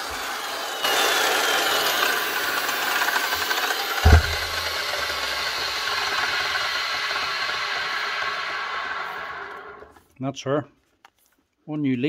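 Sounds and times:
circular saw motor running: 0:00.6 - 0:09.8
heavy thump: 0:04.0 - 0:04.8.

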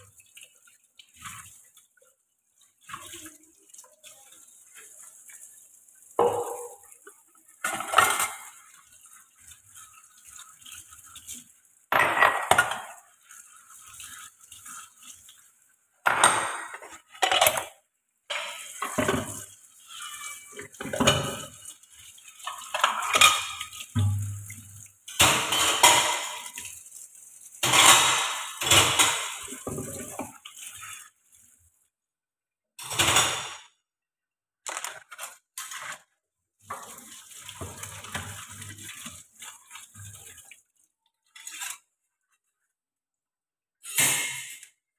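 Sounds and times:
dishes and pans clattering: 0:06.2 - 0:07.0, 0:07.6 - 0:08.7, 0:11.9 - 0:13.1, 0:16.0 - 0:21.7, 0:22.4 - 0:26.7, 0:27.6 - 0:30.4, 0:32.8 - 0:33.7.

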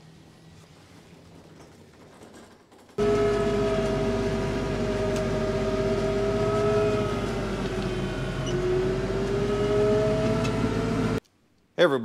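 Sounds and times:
snowblower whine: 0:03.0 - 0:11.2
tractor engine drone: 0:03.0 - 0:11.2.

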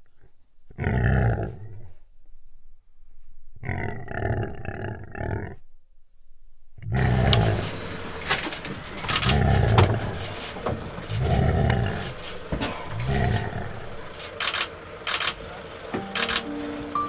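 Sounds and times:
big cat deep calls: 0:00.0 - 0:02.0, 0:03.6 - 0:05.6, 0:06.8 - 0:15.8
sharp clicks: 0:08.2 - 0:16.6.

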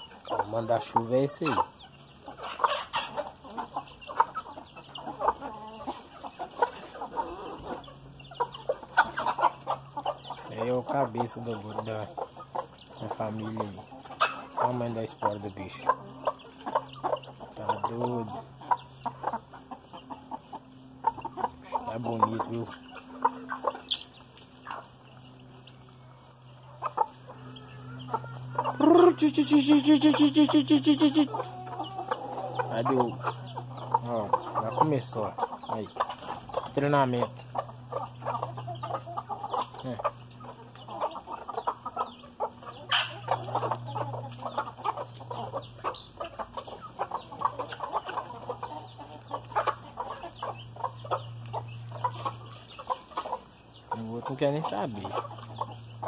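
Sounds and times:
hens clucking: 0:00.0 - 0:56.0
long wavering chicken call: 0:27.3 - 0:32.8.

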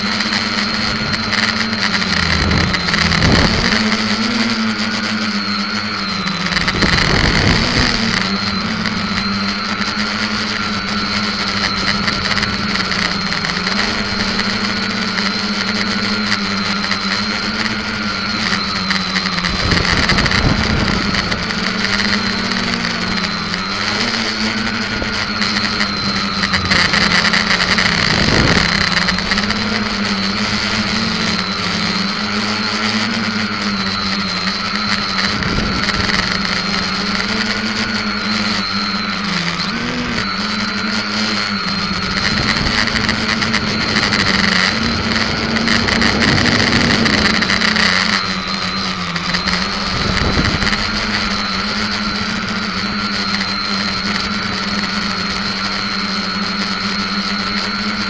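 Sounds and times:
drone motors whining: 0:00.0 - 0:58.0
wind buffeting microphone: 0:00.4 - 0:04.5, 0:06.5 - 0:09.3, 0:17.8 - 0:32.4, 0:34.7 - 0:37.6, 0:41.6 - 0:53.2.

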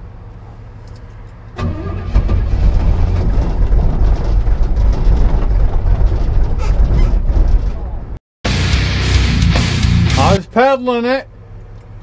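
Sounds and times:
car engine cranking and running: 0:00.1 - 0:08.2.

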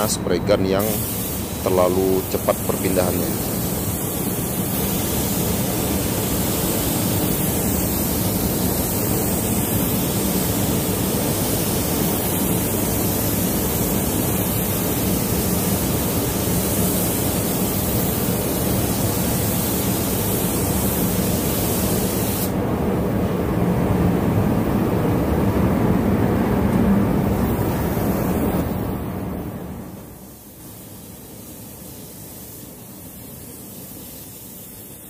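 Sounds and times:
air spray gun hissing: 0:00.0 - 0:22.6, 0:30.0 - 0:35.0.

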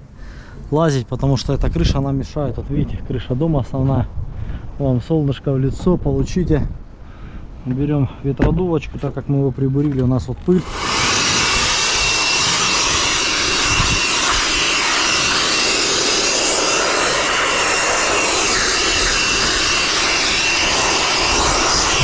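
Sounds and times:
electric blower running: 0:10.6 - 0:22.0.

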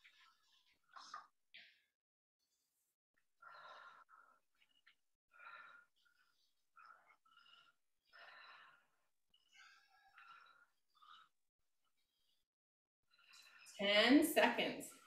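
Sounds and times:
heavy breathing: 0:03.4 - 0:12.5.

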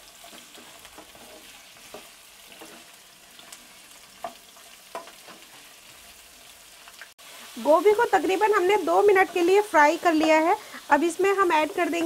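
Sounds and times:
vegetables sizzling in oil: 0:00.0 - 0:12.0
wooden spatula scraping pan: 0:00.2 - 0:06.0.

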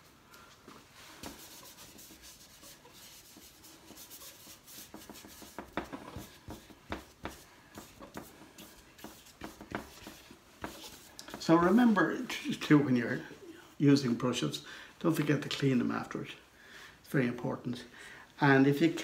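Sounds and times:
paintbrush scratching on paper: 0:01.0 - 0:11.9.

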